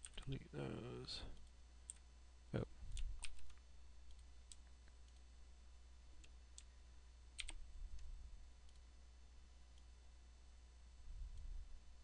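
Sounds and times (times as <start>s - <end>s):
low steady hum: 0.0s - 12.0s
computer mouse clicks: 2.9s - 5.3s, 7.4s - 8.9s.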